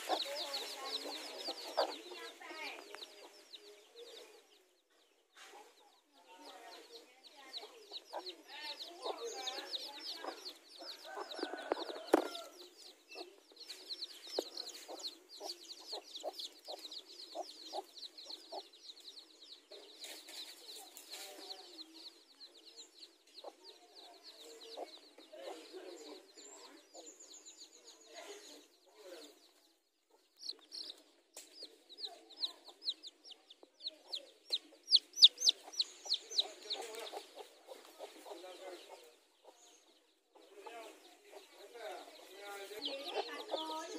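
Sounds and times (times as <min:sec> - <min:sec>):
hen clucking: 0:00.0 - 0:03.3, 0:07.6 - 0:18.8, 0:30.1 - 0:43.9
chicks peeping: 0:00.0 - 0:43.9.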